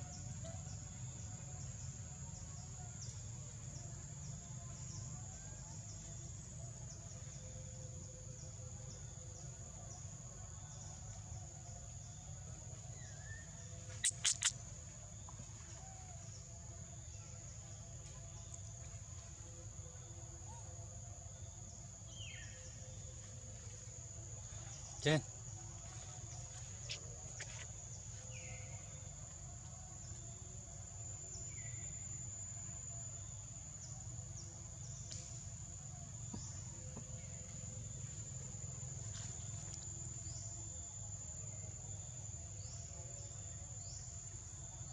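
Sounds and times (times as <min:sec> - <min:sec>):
insects droning: 0:00.0 - 0:44.9
faint bird chirps: 0:12.9 - 0:16.4
sharp clicks: 0:14.0 - 0:14.6.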